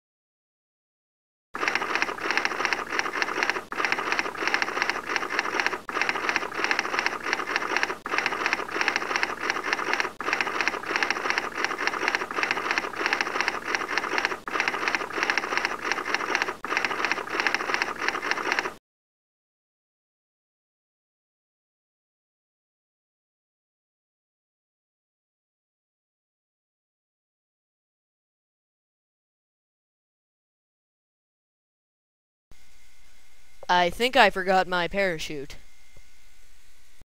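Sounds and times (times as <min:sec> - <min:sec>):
rapid typewriter-like clatter: 0:01.6 - 0:18.8.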